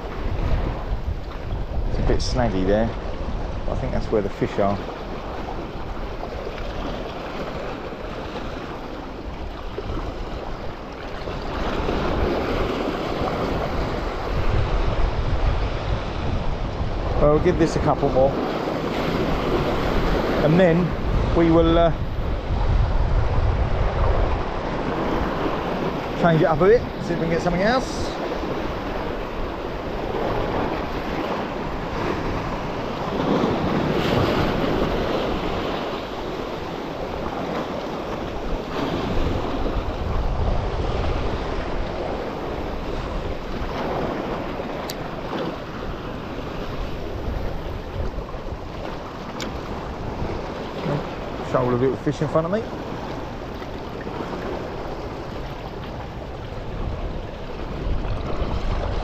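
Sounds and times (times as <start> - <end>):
waves washing against rocks: 0.0 - 59.0
wind buffeting microphone: 0.0 - 59.0.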